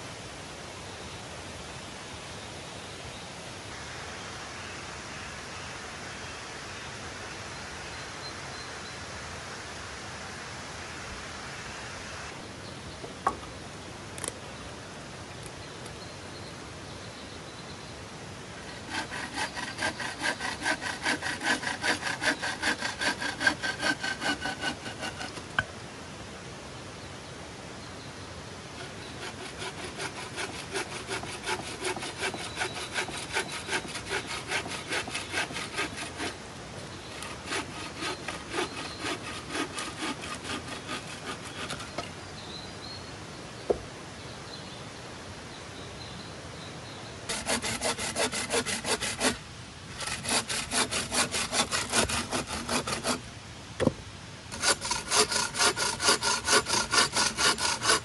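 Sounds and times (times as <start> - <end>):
bow saw cutting branch: 18.7 - 25.7, 28.8 - 36.4, 37.1 - 42.1, 47.3 - 49.4, 50.0 - 53.2, 54.5 - 58.0.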